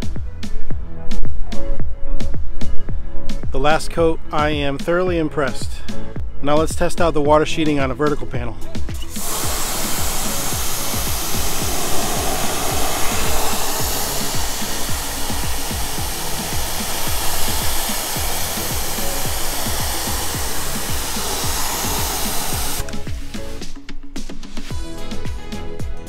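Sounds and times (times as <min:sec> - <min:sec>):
pressure washer spraying water: 0:09.0 - 0:23.7.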